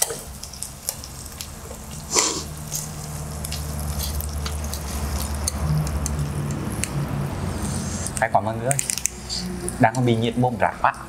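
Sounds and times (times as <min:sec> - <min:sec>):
meat sizzling on grill plate: 0:00.0 - 0:08.2.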